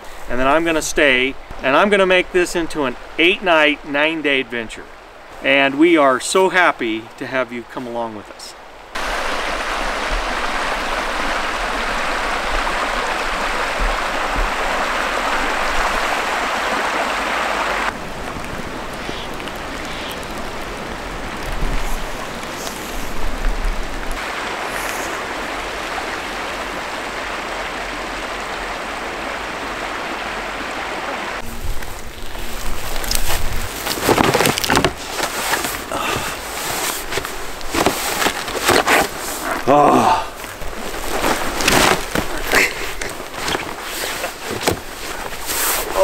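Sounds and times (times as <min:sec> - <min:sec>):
creek water rushing: 0:00.0 - 0:46.0.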